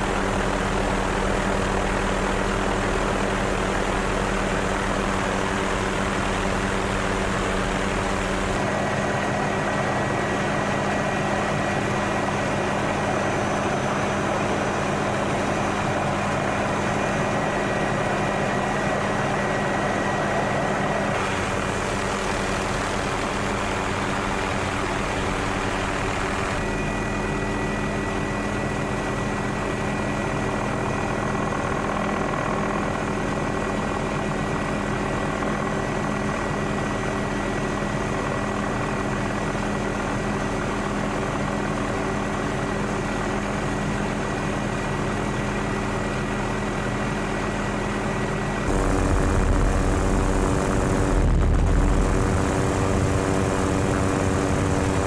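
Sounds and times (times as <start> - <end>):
aircraft engine drone: 0.0 - 55.0
thin high whine: 48.6 - 55.0.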